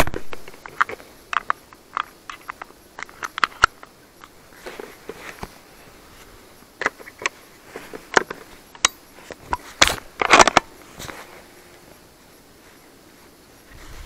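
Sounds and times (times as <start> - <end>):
rifle action clicks and knocks: 0.0 - 4.8, 6.8 - 10.7.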